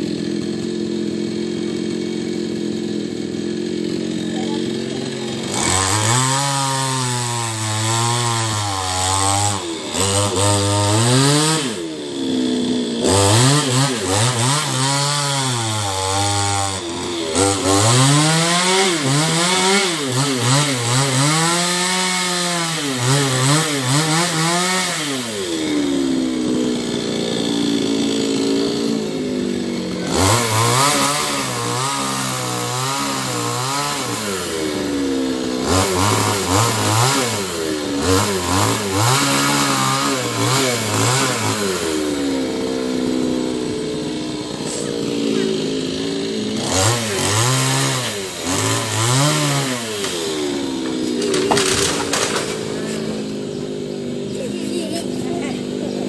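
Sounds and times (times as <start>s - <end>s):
chainsaw revving: 0.0s - 56.0s.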